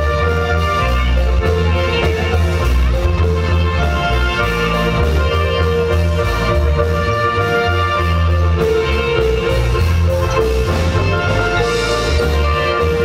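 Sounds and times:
heavy steady bass line: 0:00.0 - 0:13.0
marimba band dance music: 0:00.0 - 0:13.0.

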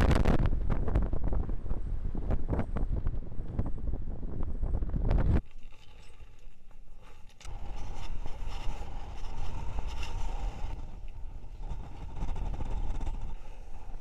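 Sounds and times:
wind buffeting microphone: 0:00.0 - 0:05.5, 0:07.4 - 0:14.0.

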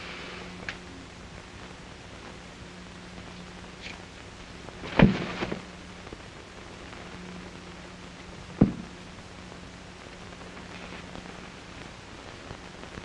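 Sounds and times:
film soundtrack hiss and hum: 0:00.0 - 0:13.0
sharp thumps: 0:08.6 - 0:09.0.

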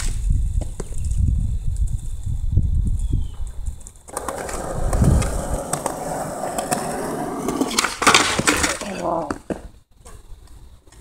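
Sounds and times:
skateboard wheels rolling on concrete: 0:00.0 - 0:11.0
skateboard clattering on concrete: 0:04.1 - 0:09.7.

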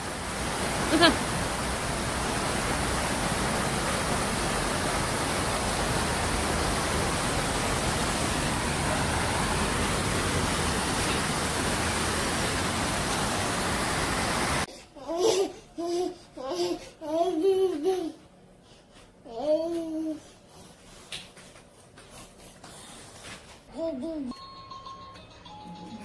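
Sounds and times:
steady rushing noise: 0:00.0 - 0:14.7
baby babbling: 0:15.0 - 0:18.2, 0:23.7 - 0:24.4.

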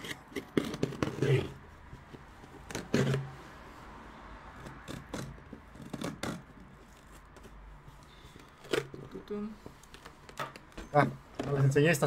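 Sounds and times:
cutter blade slitting packing tape: 0:00.0 - 0:01.3.

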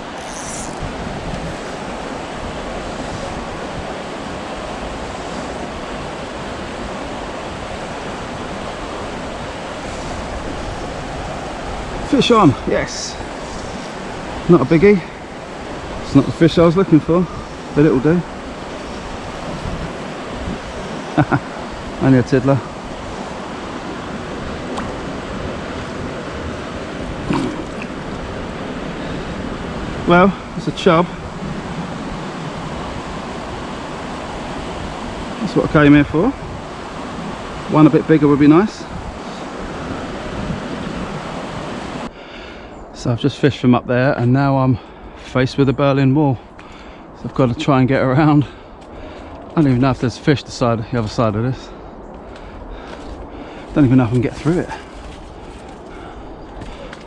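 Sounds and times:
river water rushing: 0:00.0 - 0:42.1.

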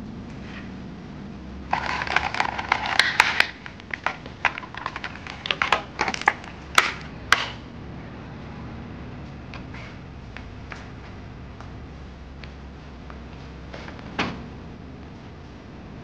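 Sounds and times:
plastic packaging crinkling: 0:01.7 - 0:07.0.

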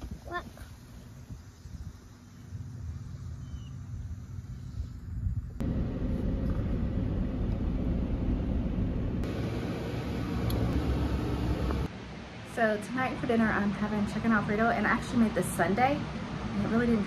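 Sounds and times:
faint outdoor hum: 0:00.0 - 0:17.0
car cabin rumble: 0:05.6 - 0:11.9.

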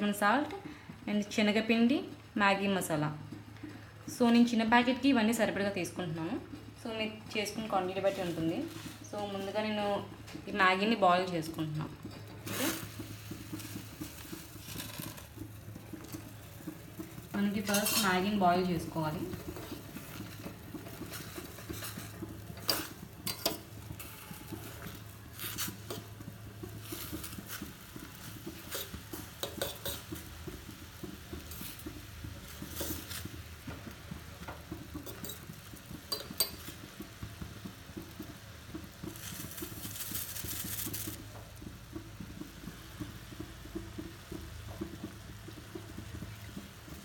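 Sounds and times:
metal pot and utensils clinking: 0:07.4 - 0:33.4, 0:34.1 - 0:41.3.

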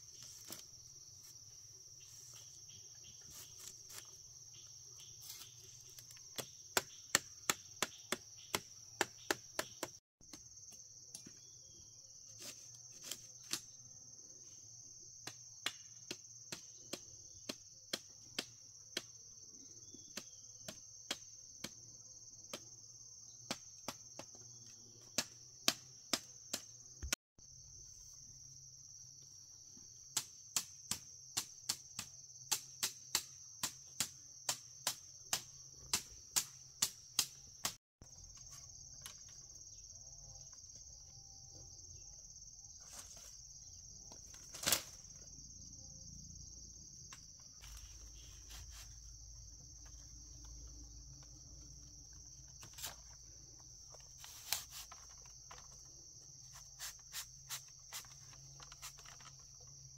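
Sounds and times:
high-pitched insect chorus: 0:00.0 - 0:09.9, 0:27.0 - 0:59.9.

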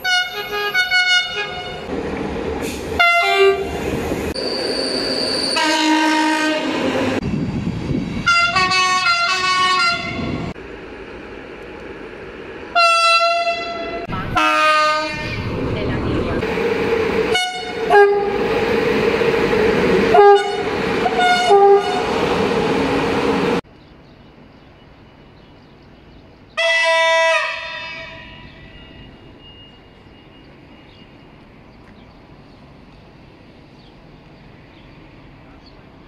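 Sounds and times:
train horn blasts: 0:00.0 - 0:01.8, 0:03.0 - 0:03.8, 0:05.6 - 0:06.9, 0:08.2 - 0:10.5, 0:12.7 - 0:15.4, 0:17.3 - 0:18.4, 0:20.1 - 0:22.1, 0:26.6 - 0:29.2
train running: 0:00.0 - 0:36.0.

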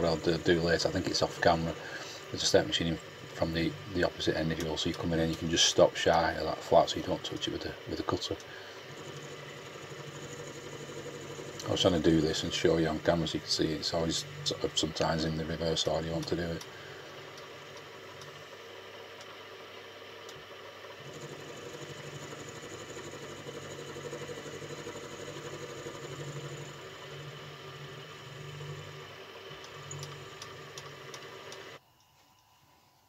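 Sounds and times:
milling machine cutting metal: 0:00.0 - 0:31.8
motor whine: 0:00.0 - 0:32.4.

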